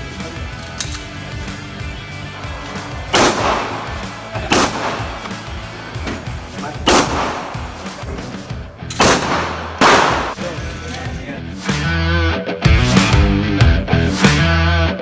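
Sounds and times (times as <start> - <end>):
background music: 0.0 - 15.0
pistol shots with ringing echo: 3.1 - 5.4, 6.8 - 8.0, 8.9 - 10.4.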